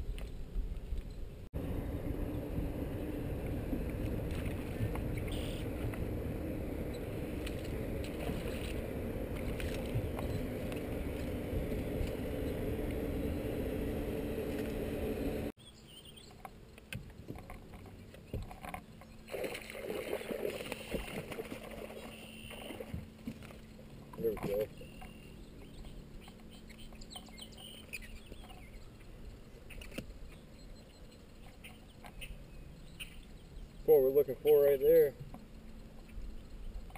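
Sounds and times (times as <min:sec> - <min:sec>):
wind noise: 0:00.0 - 0:15.5
low hum: 0:00.0 - 0:36.9
water noise: 0:01.4 - 0:15.6, 0:17.2 - 0:36.9.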